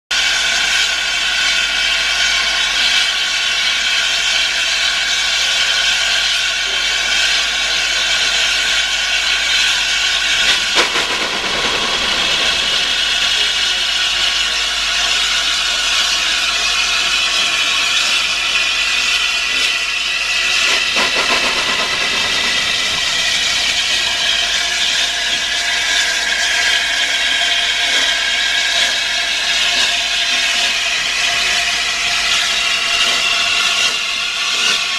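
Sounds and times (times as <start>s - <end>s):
steam locomotive hissing steam: 0.2s - 34.9s
brief sharp sounds: 10.4s - 14.4s.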